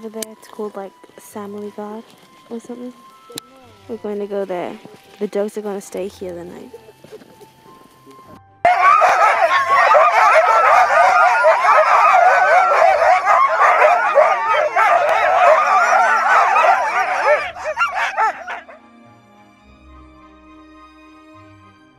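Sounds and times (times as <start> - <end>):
dogs yelping and howling: 6.7 - 18.8.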